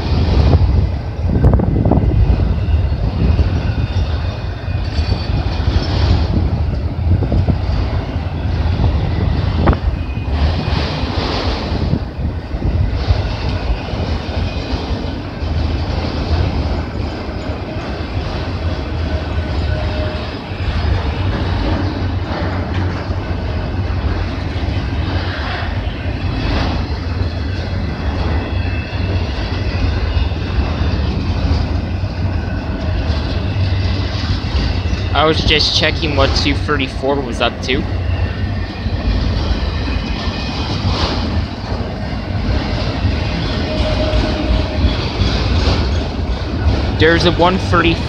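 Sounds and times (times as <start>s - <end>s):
clickety-clack of rail joints: 0.0s - 48.0s
train wheels rumbling on rail: 0.0s - 48.0s.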